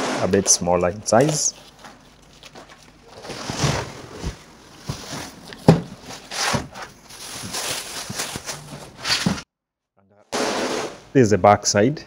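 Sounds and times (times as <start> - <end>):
cardboard scraping and rustling: 0.2 - 9.4.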